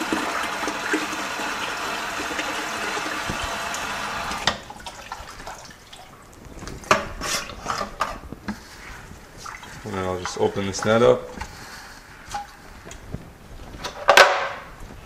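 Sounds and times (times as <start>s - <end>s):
water trickling: 0.0s - 7.0s
hose water splashing into bucket: 0.0s - 7.5s.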